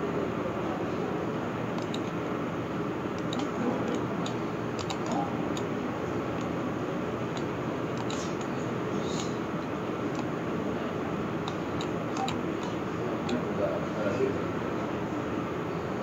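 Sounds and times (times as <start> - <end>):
mouse and keyboard clicks: 1.8 - 2.2, 3.1 - 5.7, 6.3 - 6.6, 7.3 - 10.3, 11.4 - 13.4.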